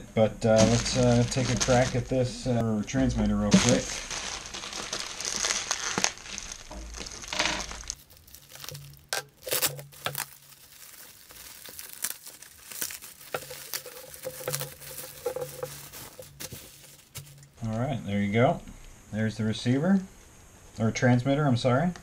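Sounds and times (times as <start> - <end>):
plastic wrapping crinkling: 0.4 - 17.6.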